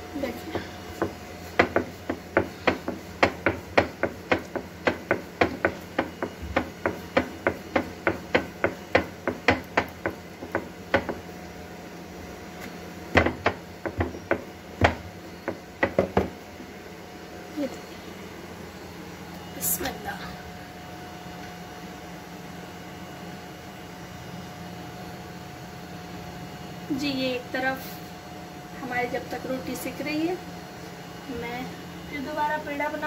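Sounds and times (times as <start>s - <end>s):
rolling pin clacking: 0.9s - 11.3s, 13.2s - 16.4s.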